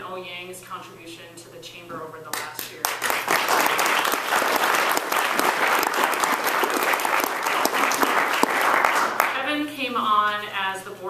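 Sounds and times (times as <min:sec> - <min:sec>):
audience applauding: 0:02.8 - 0:09.4.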